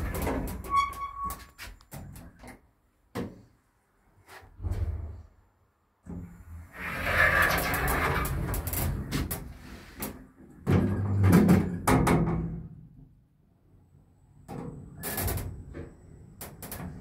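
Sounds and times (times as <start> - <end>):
elevator doors sliding and rattling: 0.0 - 2.5, 6.1 - 11.8, 14.6 - 17.0.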